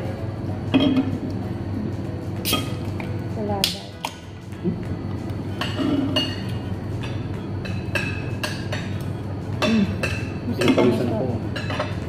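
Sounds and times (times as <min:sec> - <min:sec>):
cutlery clinking on dishes: 0:05.6 - 0:12.0.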